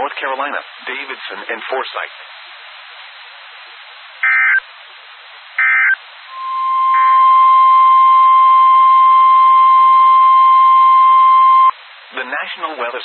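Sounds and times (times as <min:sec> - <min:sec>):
steady loud alarm tone: 0:05.6 - 0:11.7.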